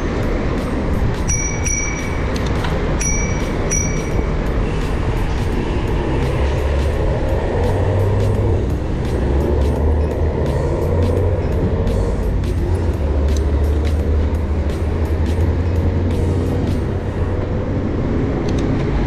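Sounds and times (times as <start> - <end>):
high beeping: 0.0 - 5.6
city traffic: 0.0 - 19.0
heavy vehicle rumbling past: 2.0 - 19.0.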